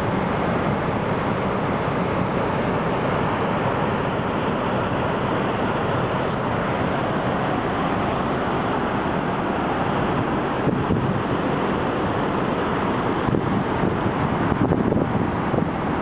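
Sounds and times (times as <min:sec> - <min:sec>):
sea wash and ship wake: 0:00.0 - 0:16.0
wind rushing over microphone: 0:10.0 - 0:16.0.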